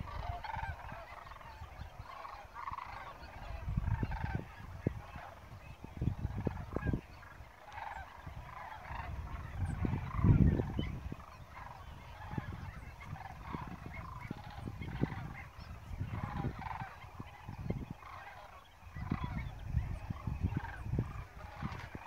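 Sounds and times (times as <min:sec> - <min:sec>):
flock of waterbirds calling: 0:00.0 - 0:22.0
low rumbles on microphone: 0:08.2 - 0:18.1, 0:18.8 - 0:22.0.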